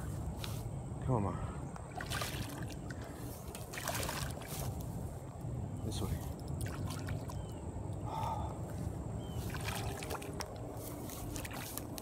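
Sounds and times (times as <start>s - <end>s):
water lapping at bank: 1.8s - 4.8s, 6.3s - 8.1s, 9.2s - 12.0s.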